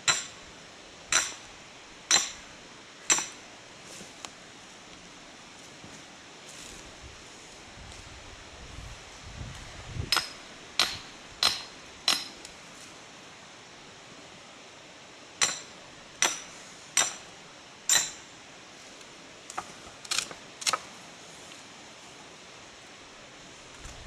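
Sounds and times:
hammer striking metal wedge: 0.1 - 0.3, 1.1 - 1.4, 2.1 - 2.4, 3.1 - 3.4, 10.1 - 12.4, 15.4 - 17.2, 17.9 - 18.2.

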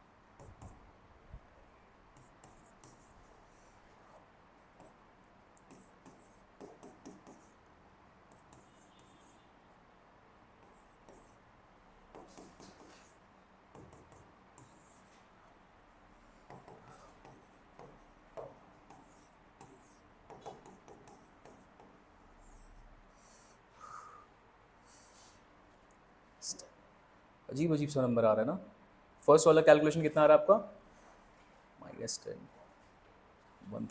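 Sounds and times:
pen scratching while writing: 2.2 - 3.2, 5.7 - 7.6, 8.3 - 9.4, 10.6 - 11.4, 12.1 - 13.2, 16.5 - 22.7.

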